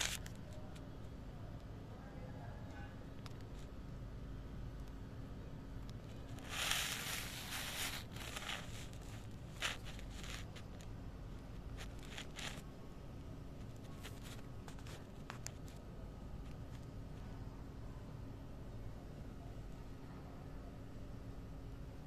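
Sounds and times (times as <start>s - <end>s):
rustles and scrapes: 0.0s - 1.2s, 5.9s - 12.8s, 13.5s - 17.2s
low steady hum: 0.0s - 22.0s.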